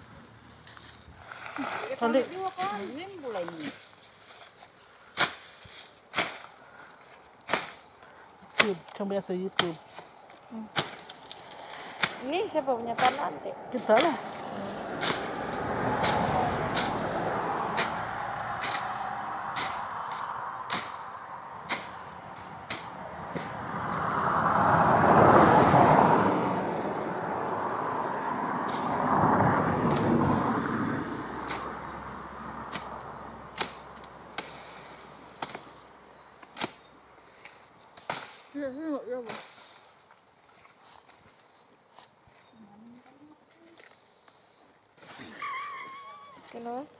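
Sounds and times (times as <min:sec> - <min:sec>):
leaves and brush rustling: 0:00.0 - 0:46.9
bush knife strikes: 0:06.1 - 0:06.5, 0:07.5 - 0:07.8, 0:08.5 - 0:08.9, 0:10.7 - 0:11.3, 0:12.0 - 0:12.3, 0:15.0 - 0:15.4, 0:17.8 - 0:21.1, 0:21.7 - 0:23.5, 0:32.7 - 0:34.6, 0:36.4 - 0:36.9, 0:38.0 - 0:38.4.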